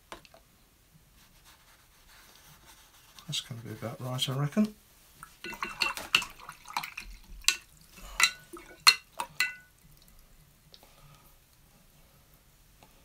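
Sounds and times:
brush clinking against pot: 5.2 - 9.7
water splashing: 5.2 - 10.2.

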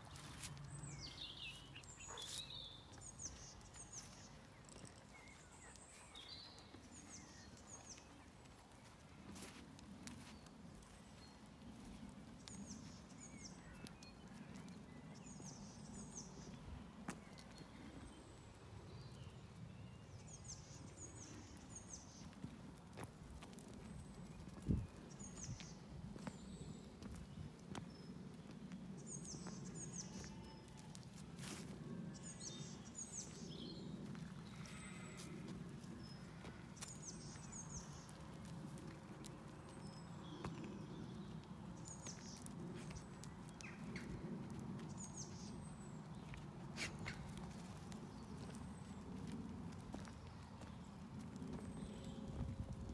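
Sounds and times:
footsteps on gravel: 0.0 - 10.5
songbird chirping: 0.0 - 22.4
small bird singing: 0.1 - 8.2.

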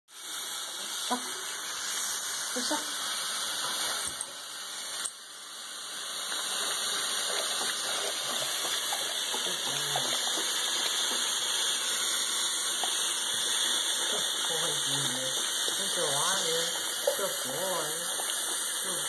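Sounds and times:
faucet running into sink: 0.1 - 19.0
dog lapping water: 6.1 - 19.0.

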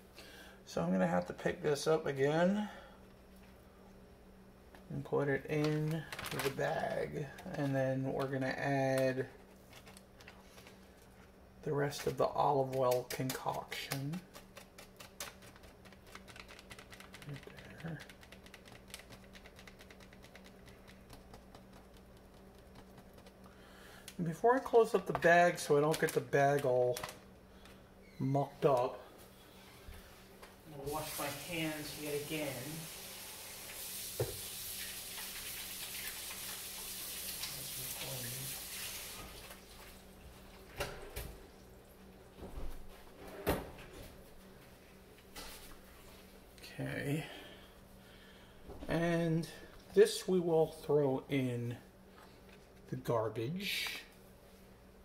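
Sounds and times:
running tap water: 30.7 - 40.1.

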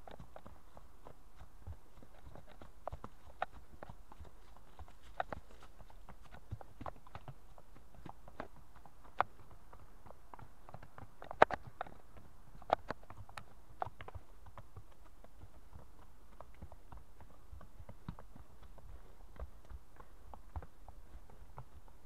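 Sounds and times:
horse hooves clopping on dirt: 0.0 - 22.0.

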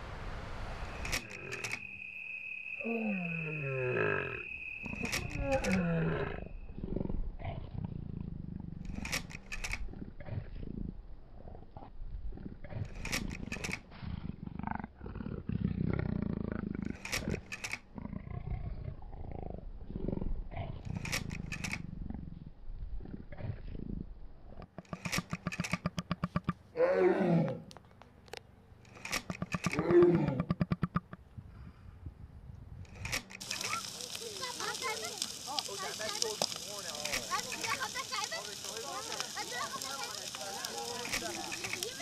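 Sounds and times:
lion grunting: 2.8 - 8.9, 9.7 - 13.2, 13.9 - 21.2, 22.0 - 24.1, 26.7 - 27.7, 29.5 - 30.7
lion growling and roaring: 2.9 - 25.2, 26.7 - 27.8, 29.2 - 30.8.

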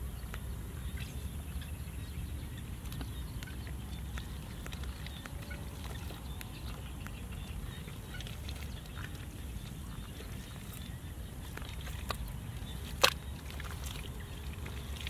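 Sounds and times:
hands digging in wet mud: 8.2 - 15.0.

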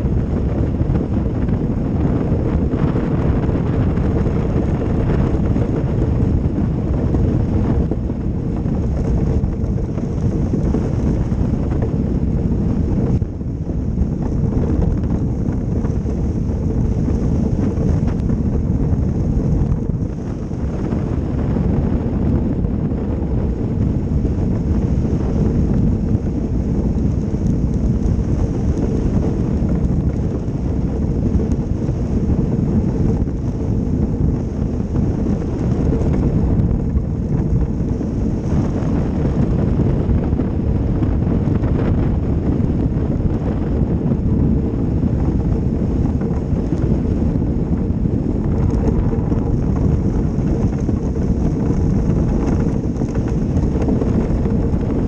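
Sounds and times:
wind buffeting microphone: 0.0 - 55.0.

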